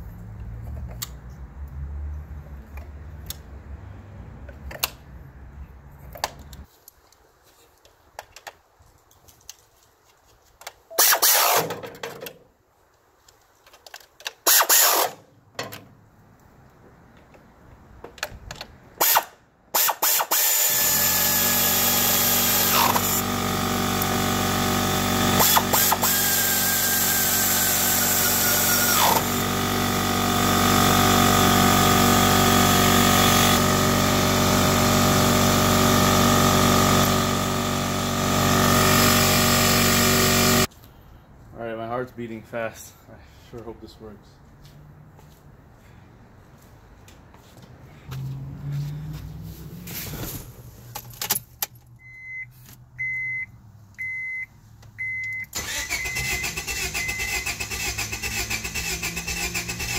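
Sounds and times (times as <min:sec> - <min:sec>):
cordless ratchet whirring: 0:14.5 - 0:15.2, 0:19.0 - 0:40.7.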